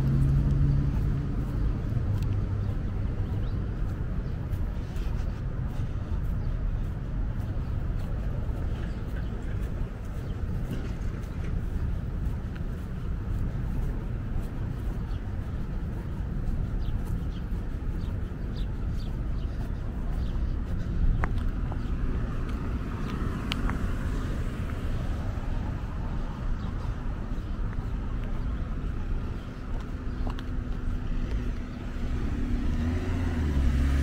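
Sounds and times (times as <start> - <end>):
road traffic rumble: 0.0 - 34.0
small birds chirping: 0.0 - 34.0.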